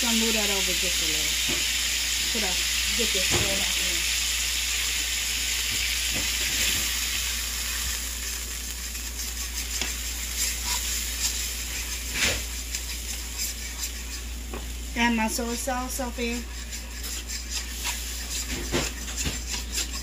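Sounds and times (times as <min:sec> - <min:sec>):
sauce and oil sizzling in pan: 0:00.0 - 0:20.0
knock on pan: 0:03.3 - 0:03.6
utensil scraping and clicking on pan: 0:05.8 - 0:14.8, 0:15.9 - 0:20.0.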